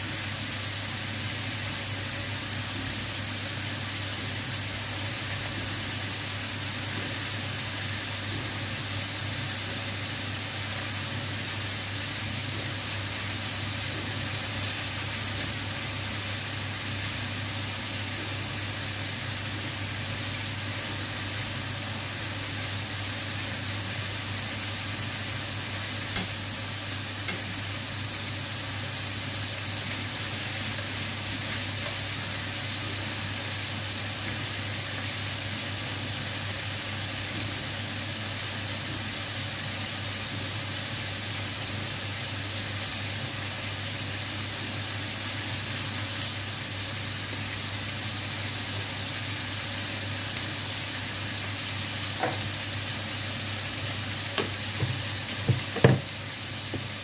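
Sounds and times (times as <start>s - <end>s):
chicken sizzling in hot oil: 0.0s - 57.0s
metal tongs clicking on pan: 26.1s - 26.4s, 27.2s - 27.5s.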